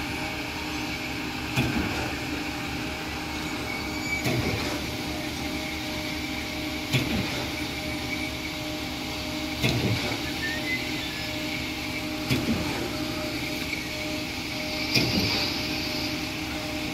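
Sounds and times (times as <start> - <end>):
diesel engine running: 0.0 - 16.9
heavy pump clunk: 1.5 - 2.2, 4.2 - 5.0, 6.9 - 7.6, 9.6 - 10.2, 12.2 - 13.0, 14.8 - 15.7.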